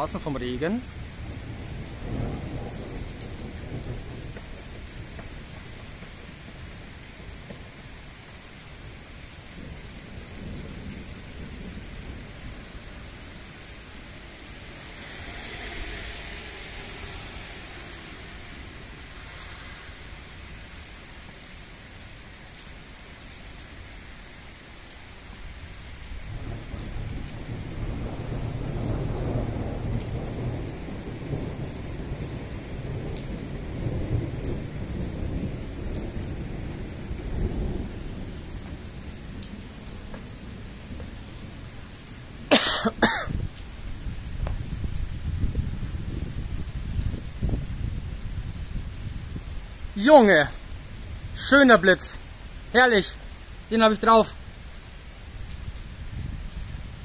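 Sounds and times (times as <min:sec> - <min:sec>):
rain splashing on pavement: 0:00.0 - 0:57.0
thunder rumbling: 0:00.8 - 0:07.8, 0:09.5 - 0:22.2, 0:26.2 - 0:41.9.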